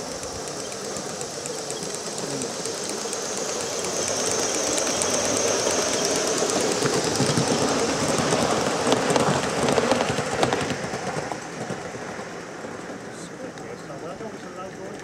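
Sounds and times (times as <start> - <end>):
steam hiss: 0.0 - 14.6
train wheels clattering on track: 0.0 - 15.0.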